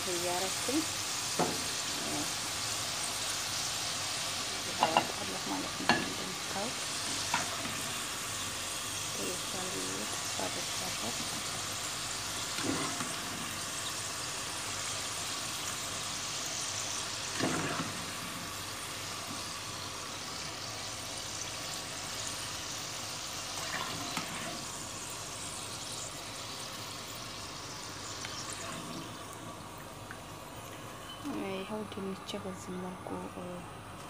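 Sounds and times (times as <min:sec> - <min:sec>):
fries sizzling in oil: 0:00.0 - 0:34.0.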